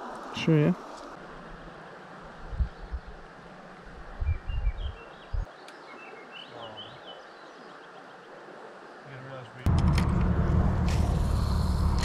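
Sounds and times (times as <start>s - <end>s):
small birds chirping: 4.2s - 8.3s
outdoor hiss: 10.7s - 12.0s.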